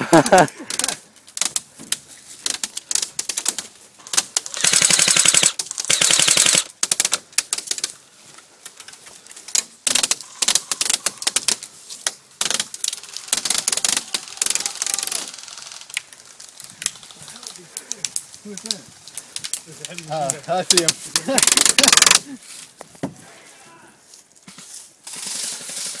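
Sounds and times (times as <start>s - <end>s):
airsoft rifles firing: 4.0s - 7.2s, 20.7s - 22.2s.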